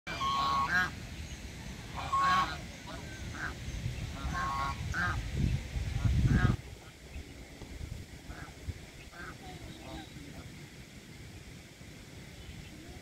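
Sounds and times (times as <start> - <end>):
geese honking: 0.1 - 1.0, 1.8 - 5.2, 8.2 - 10.5.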